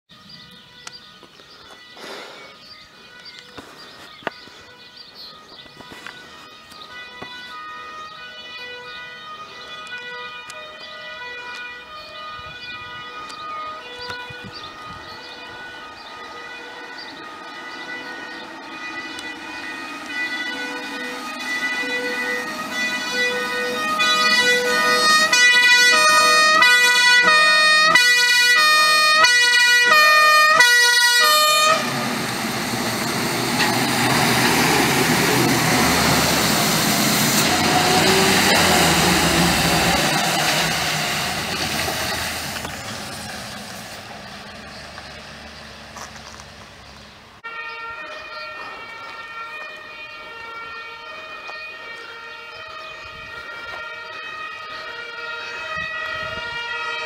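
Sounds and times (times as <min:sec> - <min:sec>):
faint two-tone siren: 0:00.1 - 0:41.9, 0:47.4 - 0:57.0
fire engine two-tone siren: 0:00.1 - 0:57.0
truck engine and tyres on wet road: 0:16.4 - 0:47.5.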